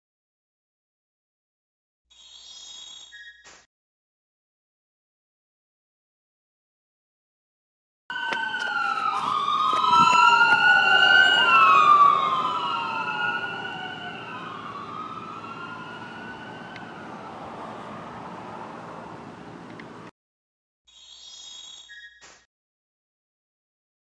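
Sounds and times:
ambulance siren wailing: 8.1 - 20.1.

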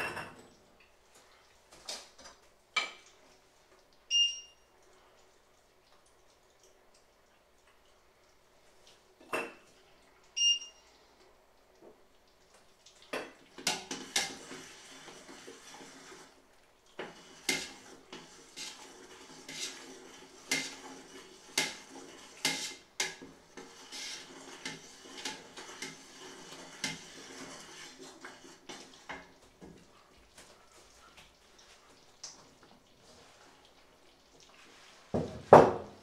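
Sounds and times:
metal utensil scraping a pot: 13.6 - 16.3, 17.0 - 29.3.

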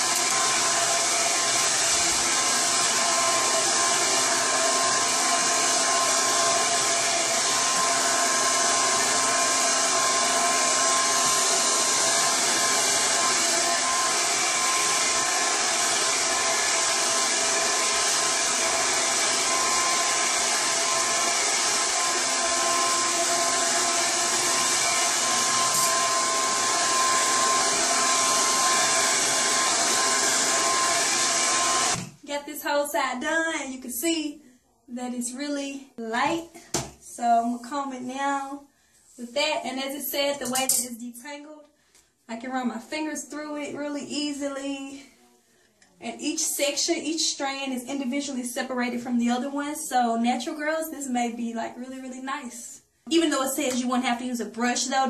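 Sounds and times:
blow dryer running: 0.0 - 32.2.

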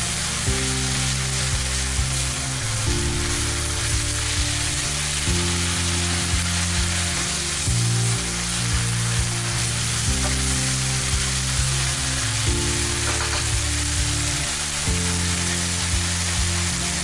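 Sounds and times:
background music low notes: 0.0 - 17.0
meat and onions sizzling in a pan: 0.0 - 17.0.

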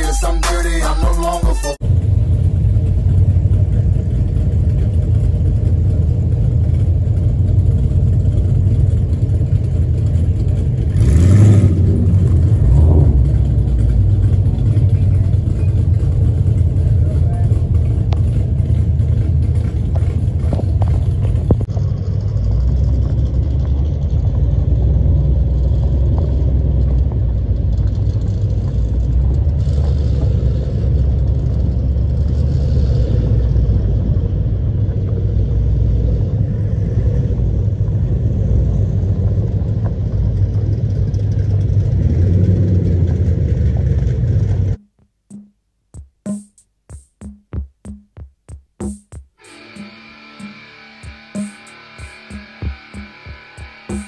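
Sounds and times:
music with drum-machine beat: 0.0 - 1.8, 44.8 - 54.0
road noise: 0.0 - 44.8, 49.4 - 54.0
car engine rumble: 0.0 - 45.2.

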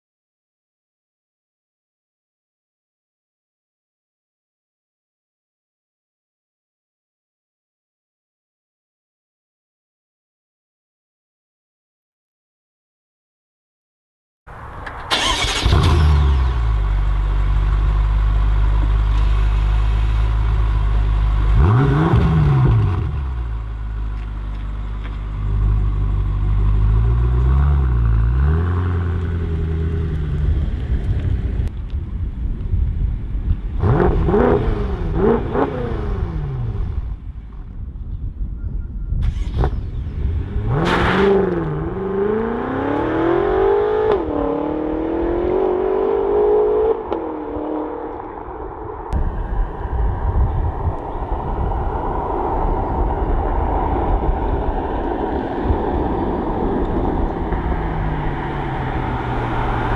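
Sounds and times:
car engine starting and idling: 14.6 - 31.7, 39.2 - 41.7
engine revving: 15.1 - 16.9, 21.4 - 23.5, 25.4 - 30.8, 33.8 - 37.0, 39.2 - 48.2
car accelerating away: 15.1 - 31.3, 39.3 - 48.4, 49.1 - 59.9.

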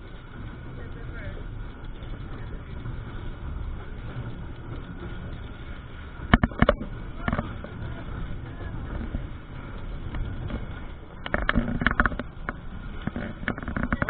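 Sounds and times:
train rumbling: 0.0 - 14.0.

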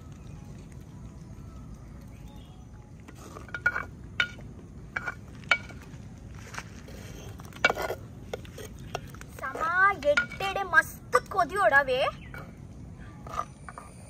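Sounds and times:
ladle clinking against clay pot: 3.1 - 5.8, 7.5 - 10.6.

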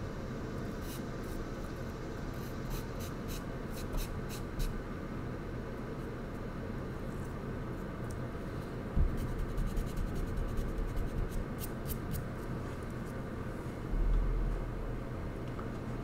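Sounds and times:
low background hum: 0.0 - 16.0
charcoal scratching on paper: 9.2 - 12.2.

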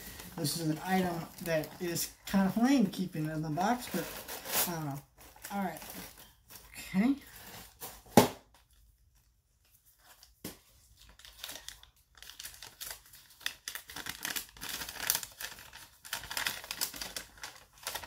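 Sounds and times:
paper crinkling and rustling: 0.0 - 18.0.

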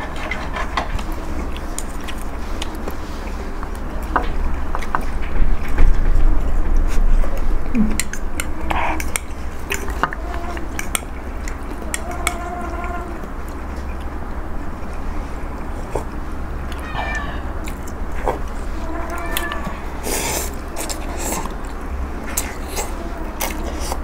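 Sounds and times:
short pitched cries: 16.8 - 17.5.

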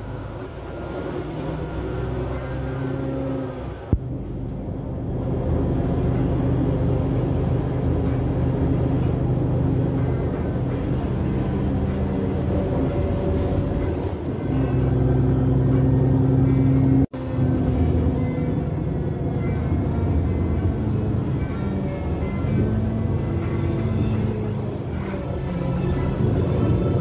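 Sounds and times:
bus engine hum: 0.0 - 27.0
road and cabin rattle: 0.0 - 27.0.

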